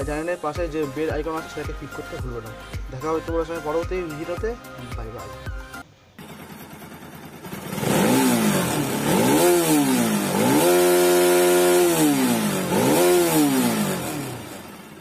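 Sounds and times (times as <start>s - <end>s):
motorcycle engine revving: 6.2s - 15.0s.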